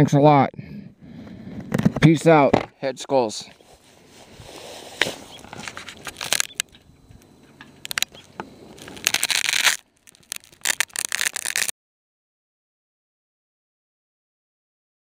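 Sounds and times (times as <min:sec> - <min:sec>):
microphone handling noise: 0:01.2 - 0:02.8
crackling: 0:03.8 - 0:11.7.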